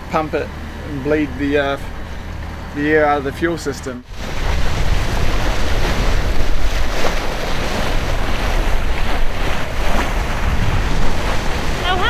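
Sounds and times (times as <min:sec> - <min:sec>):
water rushing along a hull: 0:00.0 - 0:12.0
wind buffeting microphone: 0:04.0 - 0:12.0.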